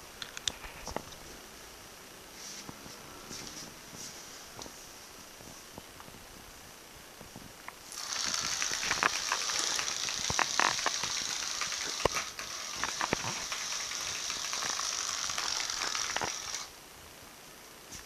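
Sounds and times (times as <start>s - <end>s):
beaded string rattling on tiles: 7.8s - 16.7s.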